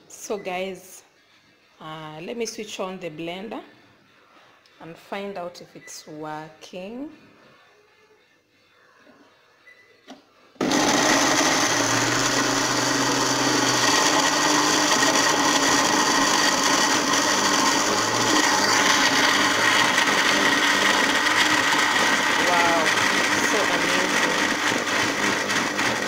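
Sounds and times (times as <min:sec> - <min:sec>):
electric blender motor running: 0:10.6 - 0:26.0.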